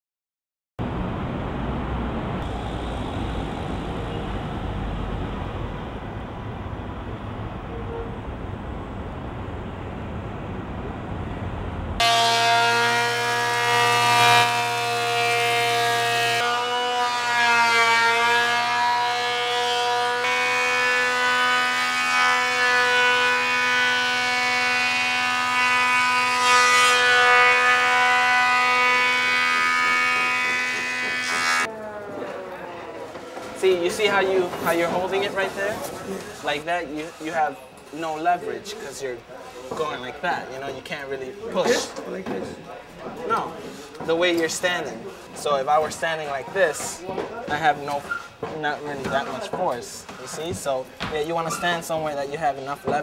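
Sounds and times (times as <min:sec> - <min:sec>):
traffic on wet street: 0:00.8 - 0:12.0
thickness planer whining: 0:12.0 - 0:40.1.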